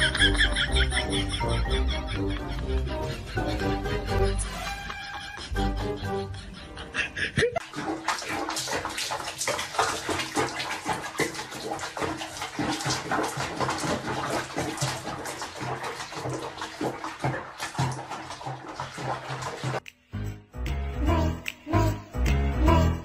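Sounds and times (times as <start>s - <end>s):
bath water splashing: 7.6s - 19.9s.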